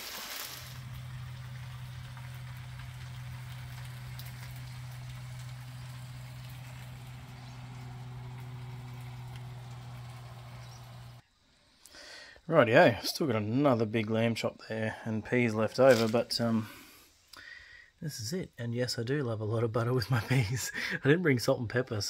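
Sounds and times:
meat sizzling in a frying pan: 0.0 - 6.4
steady low hum: 0.8 - 11.2.

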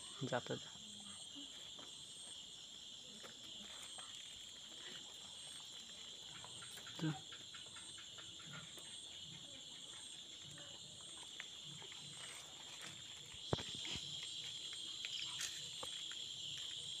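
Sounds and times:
night insects trilling: 0.0 - 17.0.

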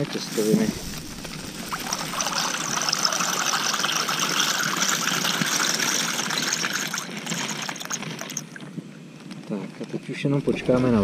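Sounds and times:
gas stove hiss: 0.0 - 7.2
pasta pouring into water: 0.7 - 8.6.

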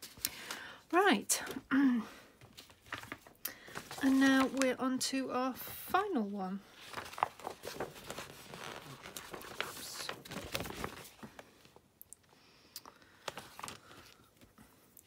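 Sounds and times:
paper rustling and crinkling: 2.4 - 4.8, 6.7 - 11.8, 13.2 - 14.6.

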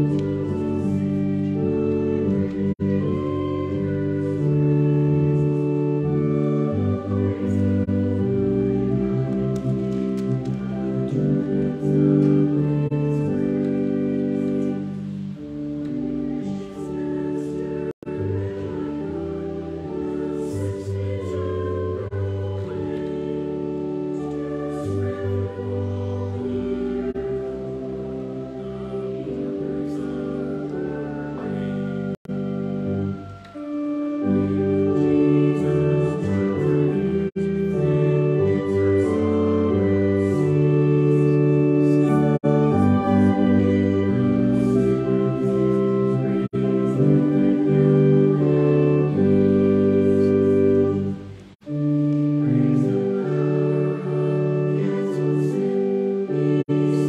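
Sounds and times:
organ playing hymn chords: 0.0 - 57.0
voices singing: 16.0 - 50.9, 52.4 - 57.0.

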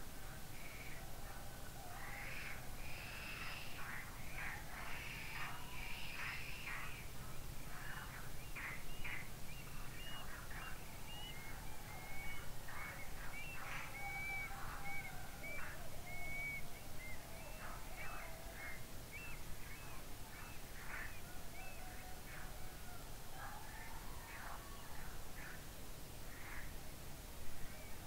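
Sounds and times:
birds chirping and whistling: 8.9 - 20.5.

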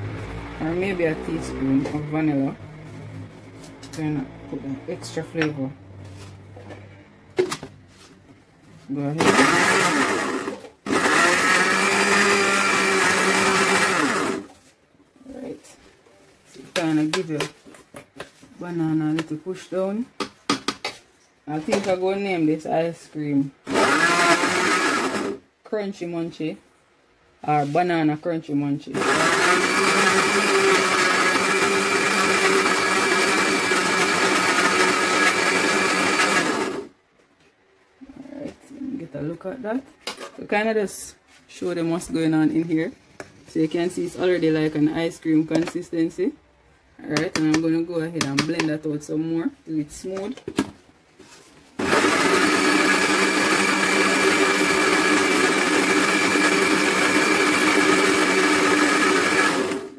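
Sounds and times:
blender running: 9.2 - 14.5, 23.7 - 25.4, 29.0 - 36.9, 51.8 - 59.9.

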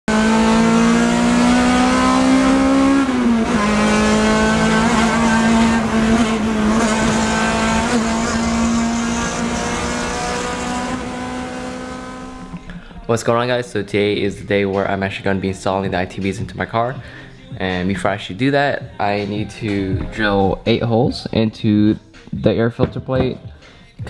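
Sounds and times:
car engine at high revs: 0.0 - 12.7.

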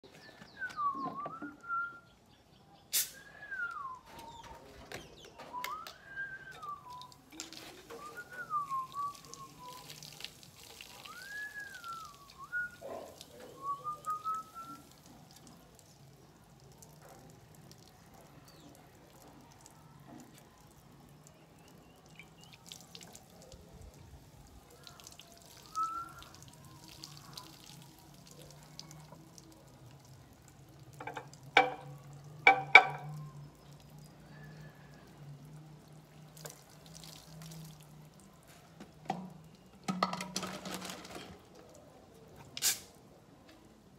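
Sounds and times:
birds whistling: 0.1 - 2.2, 11.1 - 14.9
liquid dripping into a glass: 24.7 - 38.4.

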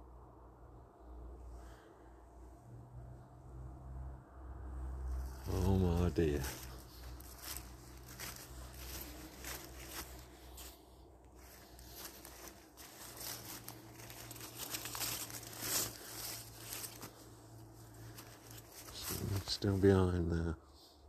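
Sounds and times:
footsteps through leaf litter: 5.1 - 20.1.

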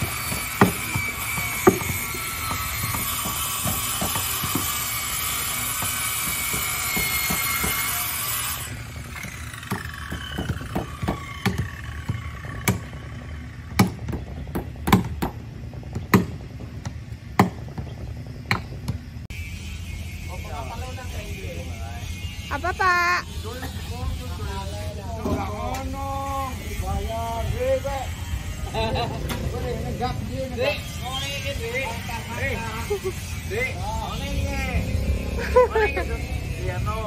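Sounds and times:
hammer blows on wood: 0.0 - 13.0
machine whining and spinning down: 0.0 - 14.8, 26.5 - 37.0.

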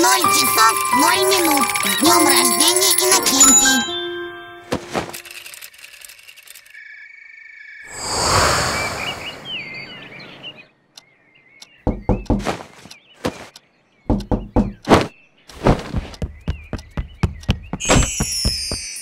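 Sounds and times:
faint birds chirping: 6.6 - 18.5
hard knocking: 11.9 - 12.6, 14.1 - 14.9, 15.8 - 18.9.

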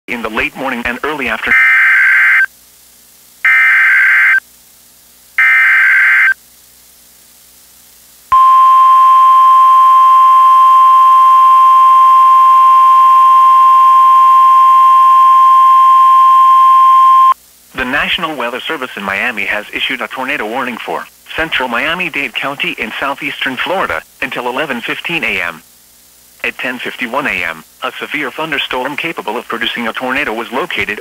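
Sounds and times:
static hiss: 0.1 - 16.1, 17.0 - 31.0
harsh two-tone data bursts: 3.4 - 4.4, 5.4 - 6.4
steady warning alarm tone: 3.5 - 4.4, 5.4 - 6.4, 8.3 - 18.0.

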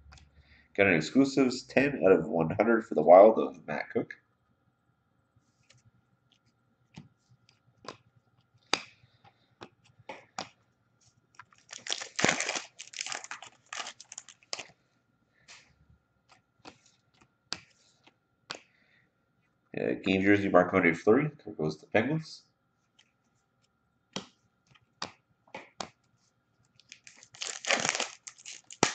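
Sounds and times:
cards clicking and tapping: 6.9 - 9.0, 9.6 - 10.6, 15.5 - 18.7, 24.1 - 26.1
wrapper tearing and crinkling: 11.5 - 14.7, 26.8 - 28.9.

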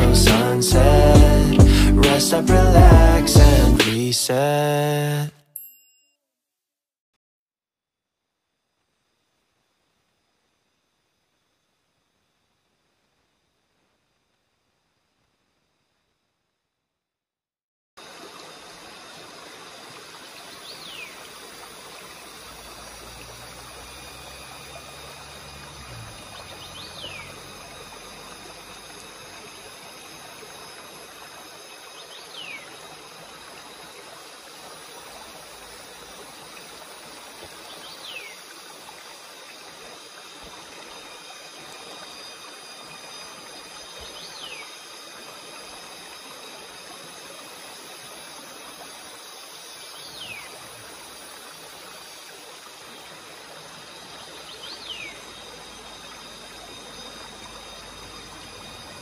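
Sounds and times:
mountain stream flowing: 0.0 - 5.3, 18.0 - 59.0.

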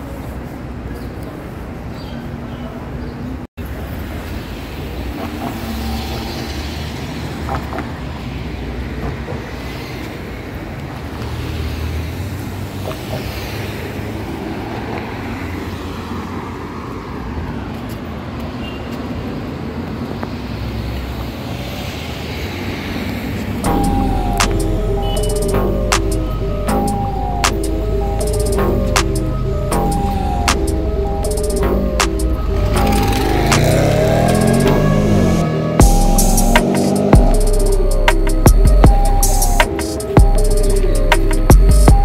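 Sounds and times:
road traffic rumble: 0.0 - 42.0.

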